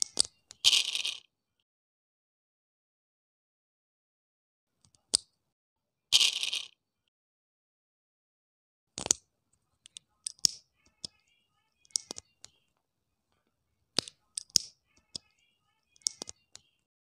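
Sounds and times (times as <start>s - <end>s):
plastic parts clicking: 9.0s - 9.2s, 9.8s - 11.2s, 11.8s - 12.6s, 14.0s - 15.2s, 16.0s - 16.7s.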